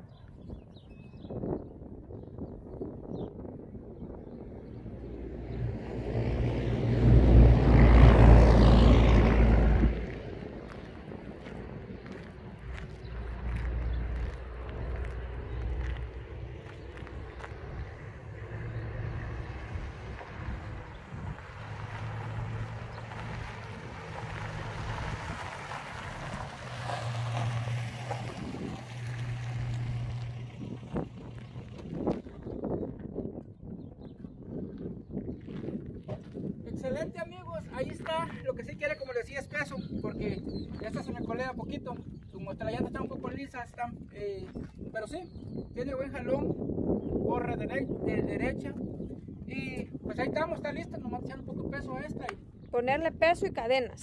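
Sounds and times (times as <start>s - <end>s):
wind noise on microphone: 0.0s - 54.0s
loud engine passing by: 4.7s - 32.2s.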